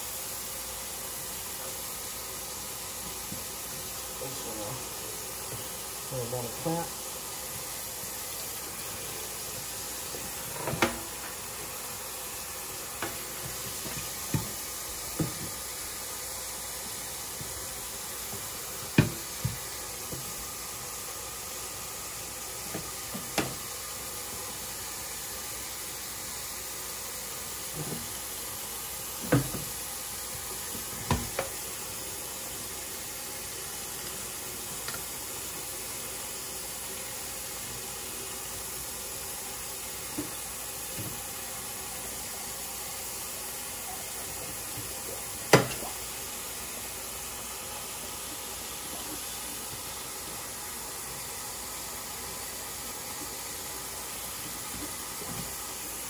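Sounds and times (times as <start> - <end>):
tap running into steel sink: 9.6 - 11.4, 13.0 - 15.6, 18.3 - 20.3, 22.7 - 23.7, 29.2 - 29.8, 30.7 - 31.6, 45.5 - 46.0.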